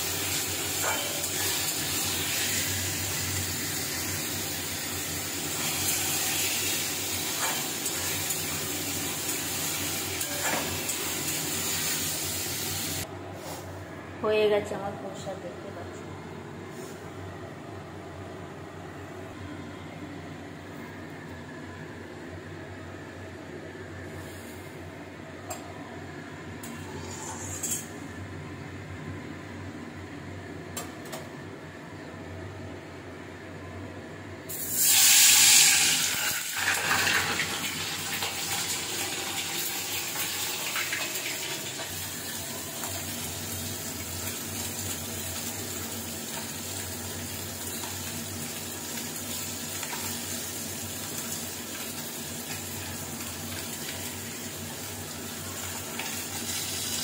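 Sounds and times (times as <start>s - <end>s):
fish sizzling in hot oil: 0.0s - 13.0s, 34.5s - 57.0s.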